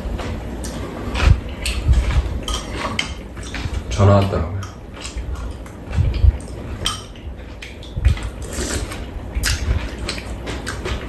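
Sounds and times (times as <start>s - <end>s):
dull low thumps: 1.1s - 2.4s, 3.6s - 8.4s.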